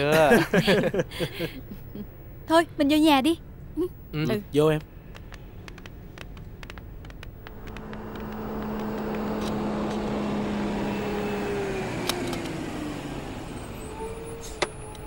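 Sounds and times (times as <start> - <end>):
car engine and tyre noise: 4.8 - 15.0.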